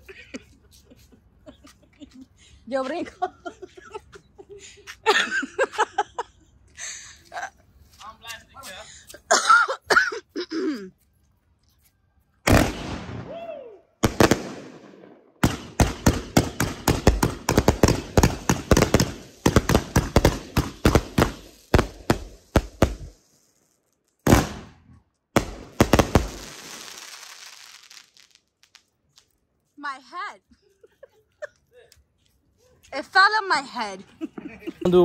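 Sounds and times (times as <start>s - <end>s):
fireworks banging and crackling: 12.4s - 13.4s, 14.0s - 23.6s, 24.2s - 28.9s
fireworks crackling hiss: 15.5s - 24.6s, 25.4s - 29.3s.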